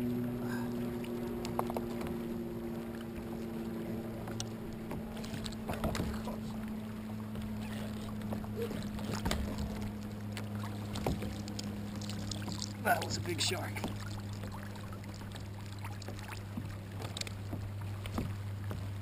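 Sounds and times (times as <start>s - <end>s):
steady low hum: 0.0s - 19.0s
water splashing against kayak: 0.0s - 19.0s
knocks of tackle and hull: 1.4s - 2.2s, 4.2s - 6.6s, 7.3s - 19.0s.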